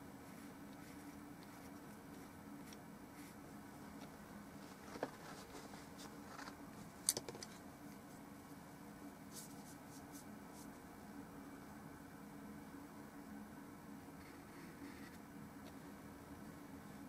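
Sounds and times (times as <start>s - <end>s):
low steady hum: 0.0s - 17.0s
brush scratching on a palette: 0.2s - 4.0s, 9.3s - 10.8s.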